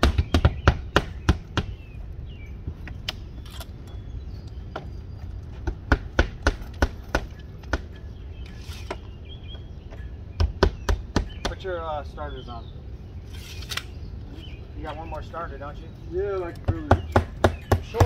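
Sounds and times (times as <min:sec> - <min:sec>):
hammers nailing siding: 0:00.0 - 0:01.8, 0:05.6 - 0:08.0, 0:10.4 - 0:11.7, 0:16.4 - 0:18.0.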